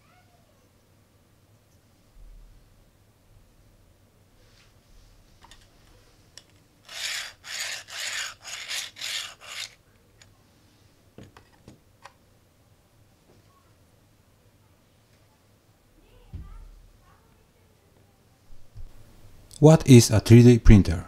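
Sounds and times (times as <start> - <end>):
plastic drill sleeve rasping: 6.9 - 9.8.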